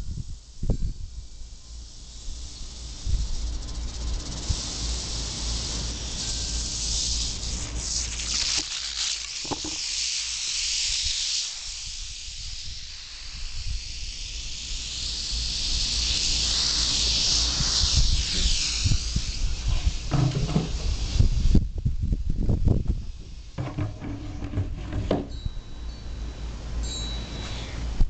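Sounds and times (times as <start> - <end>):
rattlesnake rattling: 0.0 - 25.4
low knocks: 23.6 - 25.3.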